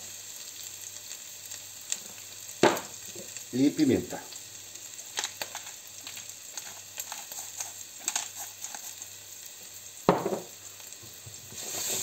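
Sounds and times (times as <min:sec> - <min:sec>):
onion and garlic sizzling in oil: 0:00.0 - 0:12.0
small crackles: 0:04.3 - 0:09.6
knock: 0:10.1 - 0:10.5.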